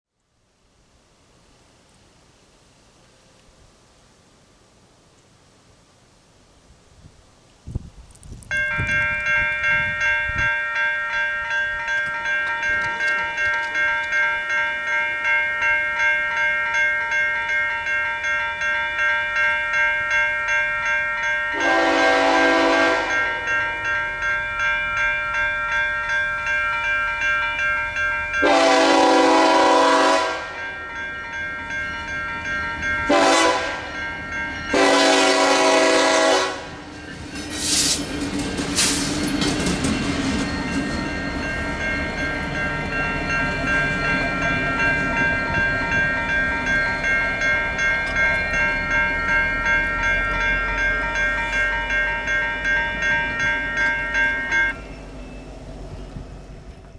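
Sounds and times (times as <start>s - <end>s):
electronic crossing bell ringing: 8.5s - 37.4s, 39.6s - 56.2s
locomotive horn: 21.5s - 23.5s, 28.4s - 30.7s, 33.1s - 34.0s, 34.7s - 36.9s.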